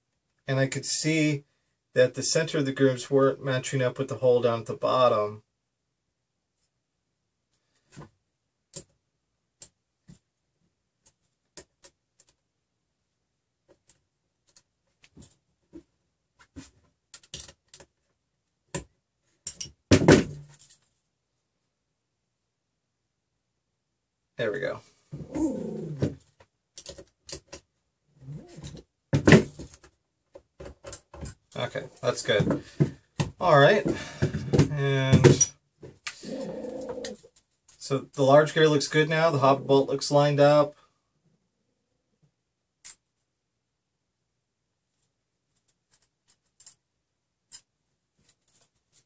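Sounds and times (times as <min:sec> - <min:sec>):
clicks and knocks of handled parts: 0:16.6 - 0:18.1, 0:18.7 - 0:21.0, 0:26.3 - 0:27.7, 0:28.6 - 0:31.7, 0:45.6 - 0:46.8, 0:47.5 - 0:49.0.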